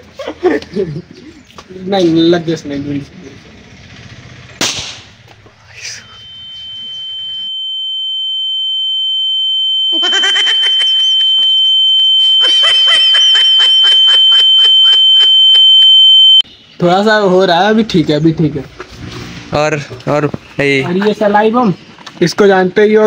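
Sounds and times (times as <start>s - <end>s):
voices talking and laughing: 0.0s - 3.6s, 9.8s - 16.3s
high-pitched ringing tone: 5.3s - 16.4s.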